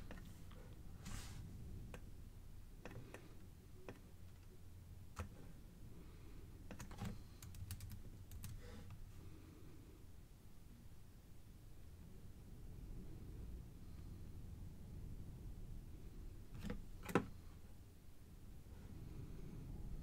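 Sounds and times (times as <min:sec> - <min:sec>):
keyboard and mouse clicks: 0:02.8 - 0:04.5, 0:05.1 - 0:05.5, 0:06.7 - 0:08.6.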